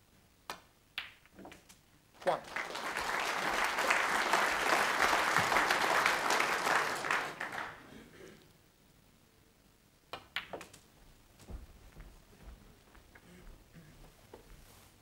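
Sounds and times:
audience applauding: 2.2s - 7.9s
snooker balls clicking: 10.1s - 10.8s.

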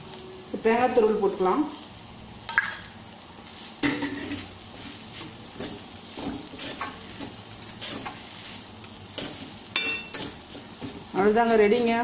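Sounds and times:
frying sizzle: 0.0s - 12.0s
metal spatula scraping pan: 3.8s - 11.1s.

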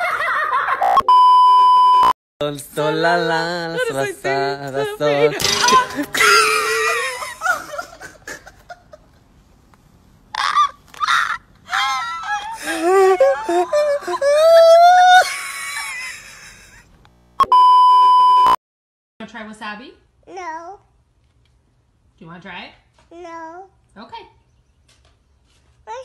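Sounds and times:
electronic test-tone beep: 0.8s - 2.1s, 17.4s - 18.6s
man shrieking with laughter: 10.4s - 16.5s.

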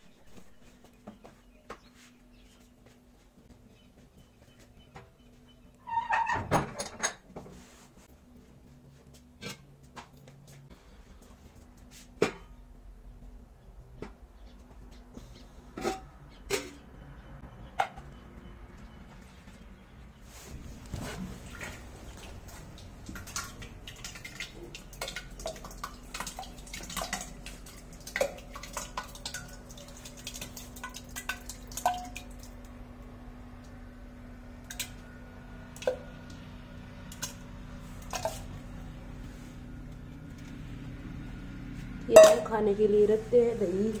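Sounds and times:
curd dripping and plopping: 20.8s - 32.9s.

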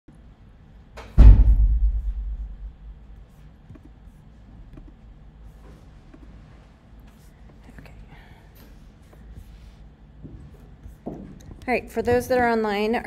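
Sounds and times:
heavy thump with low rumble: 1.2s - 3.1s.

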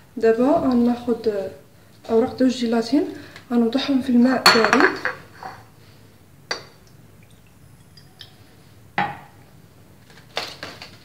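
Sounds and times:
dishes knocking on countertop: 9.0s - 9.3s.

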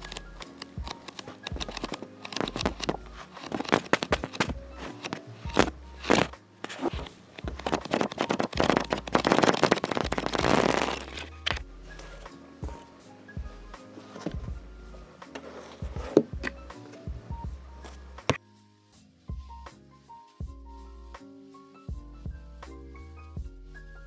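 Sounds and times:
paper pages flipping: 0.0s - 12.2s, 15.3s - 17.1s.

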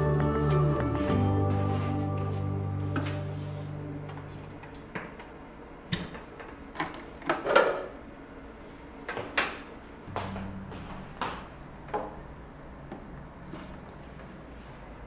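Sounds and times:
background music: 0.0s - 4.3s.

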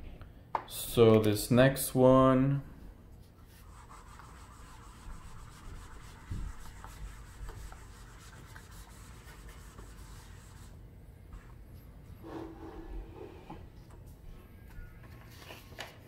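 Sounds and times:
eraser rubbing on whiteboard: 3.4s - 10.8s.

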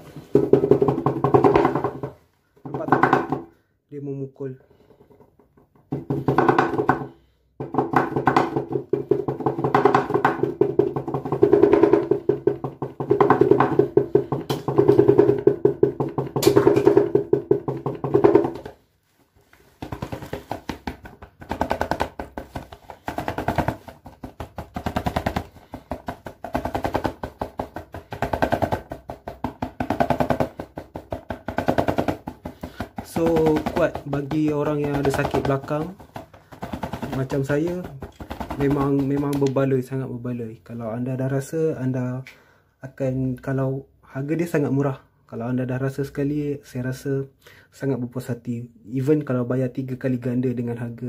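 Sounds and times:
massager drums tapping rapidly: 0.2s - 3.5s, 5.0s - 18.8s, 19.8s - 39.8s.

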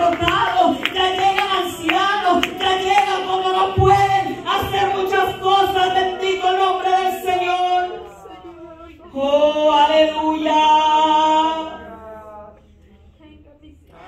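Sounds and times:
men and women singing: 0.0s - 14.0s.

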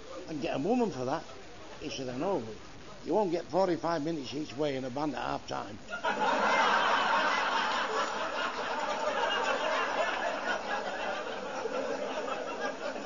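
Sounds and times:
audience laughing: 5.9s - 13.0s.

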